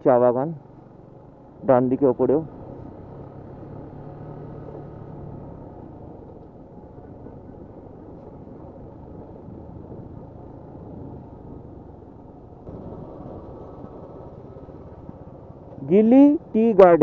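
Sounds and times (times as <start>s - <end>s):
motorcycle engine: 0.0s - 17.0s
wind rumble on microphone: 6.1s - 16.3s.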